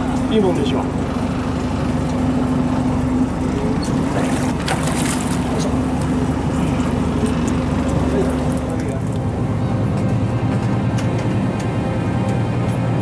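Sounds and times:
boat engine humming: 0:00.0 - 0:13.0
water splashing: 0:03.7 - 0:09.2.

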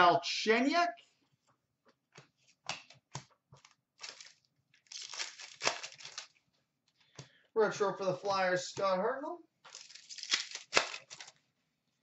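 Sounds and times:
cards scraping and rustling: 0:02.2 - 0:06.4, 0:09.7 - 0:11.4.

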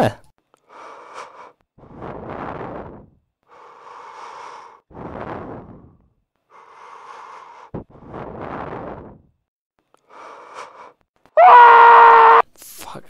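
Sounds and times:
person breathing heavily: 0:00.6 - 0:09.4, 0:10.0 - 0:11.0.

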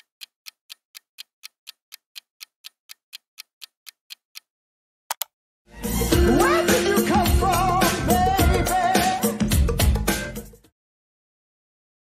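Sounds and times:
clock ticking: 0:00.0 - 0:04.5.

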